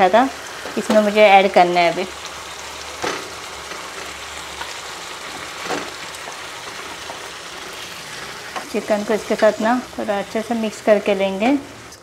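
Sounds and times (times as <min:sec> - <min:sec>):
gravy sizzling in a frying pan: 0:00.0 - 0:12.0
food pieces knocking into pan: 0:02.9 - 0:07.4.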